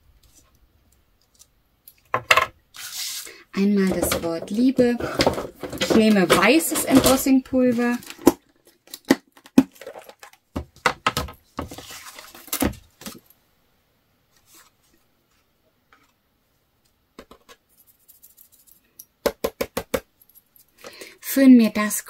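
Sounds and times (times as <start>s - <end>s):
plastic clicks and knocks: 8.1s - 11.4s.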